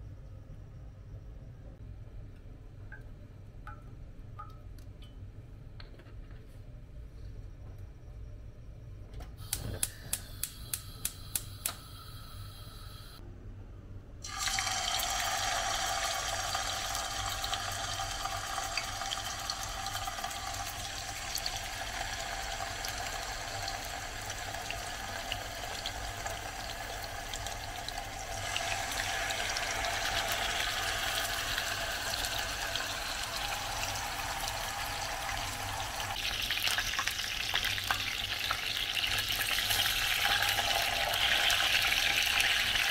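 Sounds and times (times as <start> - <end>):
chicken frying in hot oil: 14.2 - 42.9.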